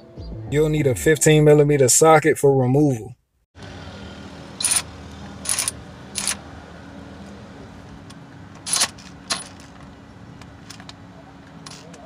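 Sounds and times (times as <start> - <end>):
metal socket clinking: 4.6 - 4.8, 5.4 - 6.4, 8.7 - 9.7, 11.6 - 12.0.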